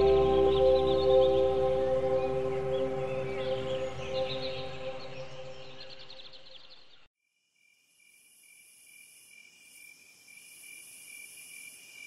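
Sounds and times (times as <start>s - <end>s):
song: 0.0s - 6.0s.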